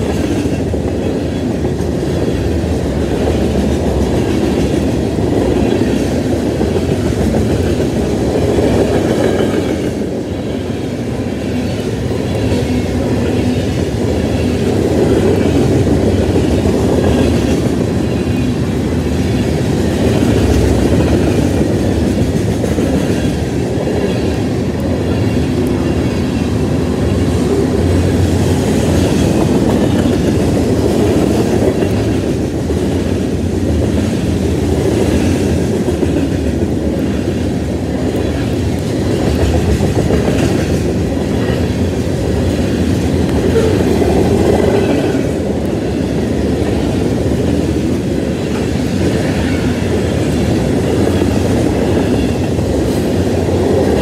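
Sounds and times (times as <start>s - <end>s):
freight train wheels rumbling: 0.0s - 54.0s.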